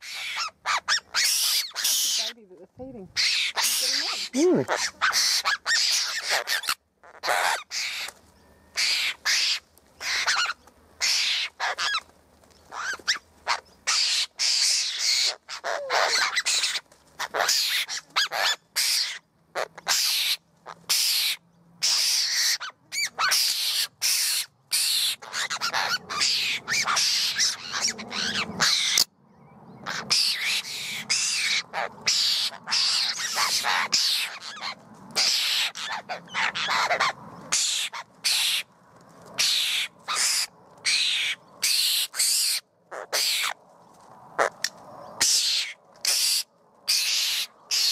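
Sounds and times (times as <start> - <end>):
birds harsh rasping calls: 0.0 - 2.4, 3.1 - 29.1, 29.7 - 43.6, 44.4 - 47.9.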